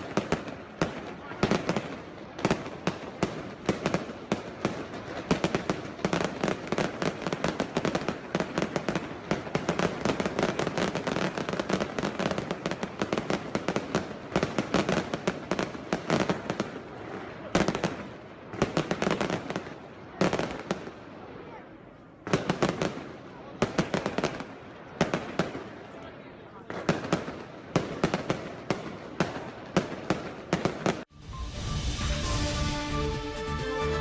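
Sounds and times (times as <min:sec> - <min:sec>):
fireworks bangs and crackles: 0:00.0 - 0:34.0.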